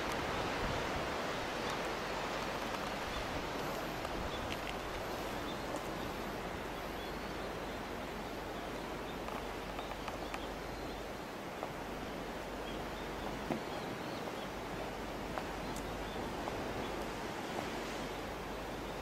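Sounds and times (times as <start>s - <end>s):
wind: 0.0s - 19.0s
faint small clicks: 1.6s - 6.0s, 9.2s - 10.5s.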